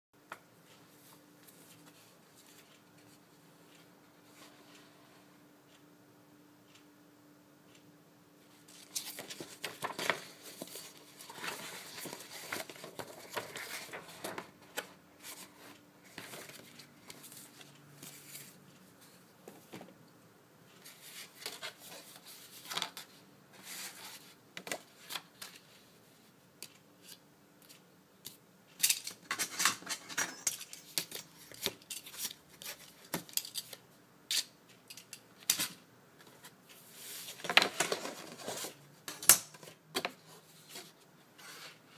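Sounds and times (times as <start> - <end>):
paper rustling and sliding: 8.8 - 18.6, 36.2 - 38.8, 39.6 - 41.9.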